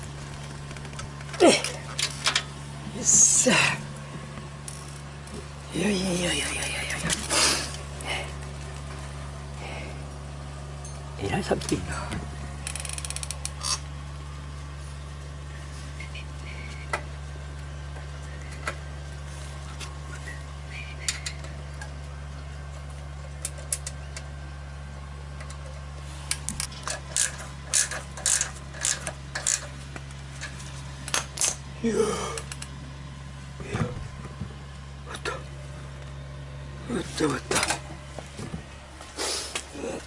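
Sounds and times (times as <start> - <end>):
steady low hum: 0.0 - 40.0
metallic clinks of muffler parts: 10.7 - 13.9, 25.3 - 31.6.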